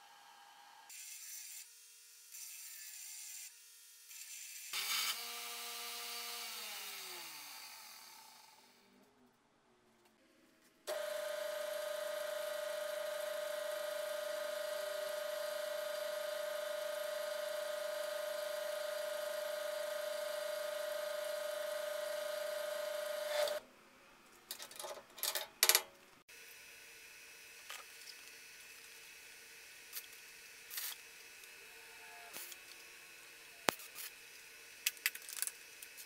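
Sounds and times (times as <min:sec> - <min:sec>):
drill press boring through steel: 0:10.9 - 0:23.6.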